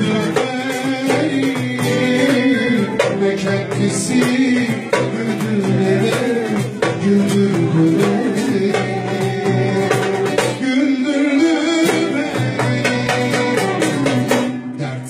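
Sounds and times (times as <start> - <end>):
plucked string melody: 0.0 - 15.0
percussion strokes: 11.7 - 14.8.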